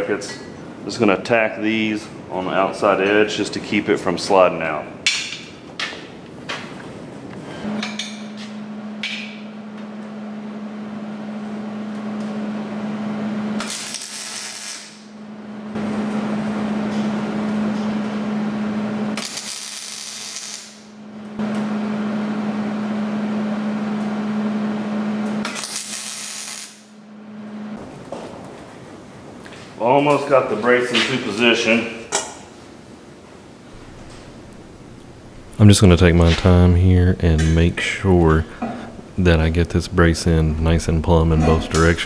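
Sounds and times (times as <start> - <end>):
welder arc buzzing: 7.5 - 28.0, 33.7 - 36.8.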